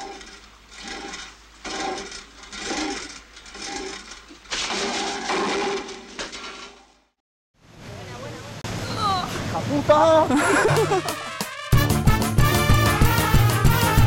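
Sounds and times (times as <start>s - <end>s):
dense cartoon sound effects: 10.4s - 13.0s.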